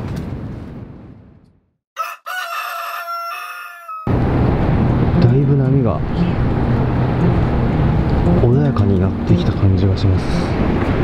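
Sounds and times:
outdoor noise: 0:00.0 - 0:11.0
rooster crowing: 0:02.0 - 0:04.1.

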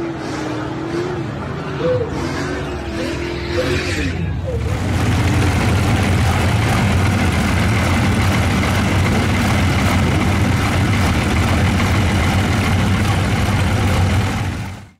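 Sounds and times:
diesel engine idling: 0:04.4 - 0:14.9.

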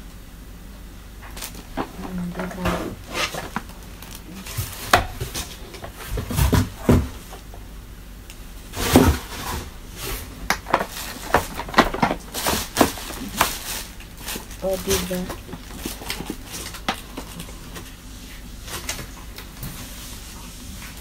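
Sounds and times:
hard plastic clattering: 0:01.2 - 0:07.5, 0:08.8 - 0:17.9
cardboard and packaging rustling: 0:01.2 - 0:07.6, 0:08.7 - 0:21.0.

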